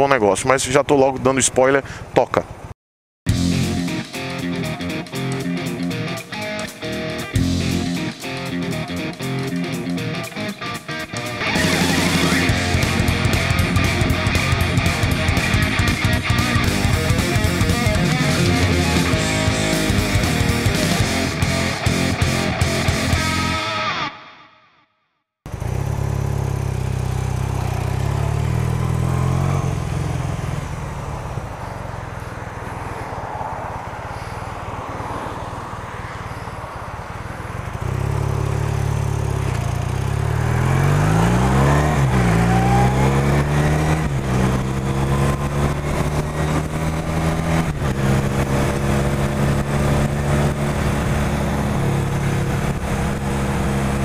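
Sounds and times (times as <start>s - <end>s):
motorcycle engine revving: 3.3s - 23.7s, 25.5s - 34.8s, 35.4s - 54.0s.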